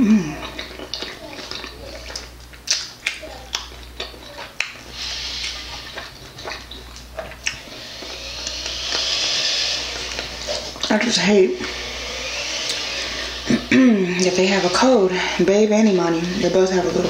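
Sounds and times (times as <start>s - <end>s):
wet chewing and mouth smacks: 0.4s - 11.0s.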